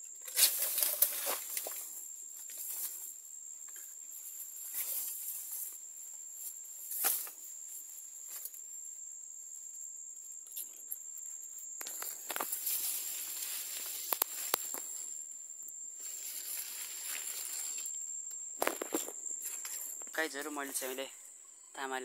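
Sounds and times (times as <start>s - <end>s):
bamboo rustling and snapping: 0.2s - 3.9s, 4.6s - 5.8s, 6.5s - 7.4s, 11.8s - 15.0s, 16.0s - 20.2s.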